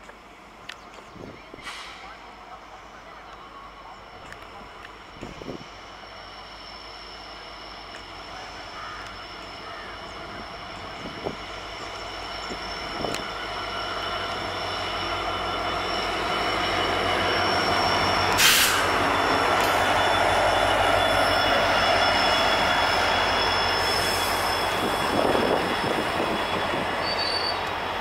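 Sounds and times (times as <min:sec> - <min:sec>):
diesel locomotive approaching: 0:00.0 - 0:28.0
steady high whine: 0:04.2 - 0:28.0
loud burst of noise: 0:18.3 - 0:19.1.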